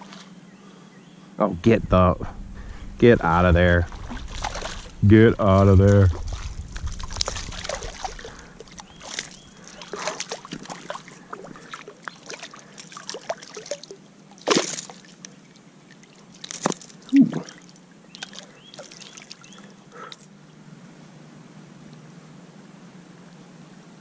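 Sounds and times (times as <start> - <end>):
water sloshing: 2.0 - 20.2
fish splashing and flapping: 3.9 - 20.2.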